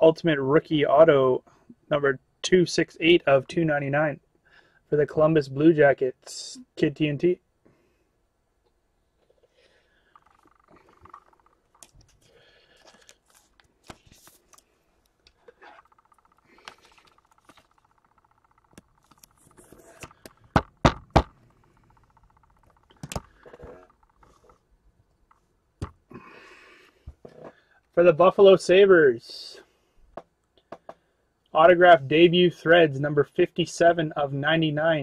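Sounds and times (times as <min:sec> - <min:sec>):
cards and plastic wrap rustling: 0:11.8 - 0:16.0.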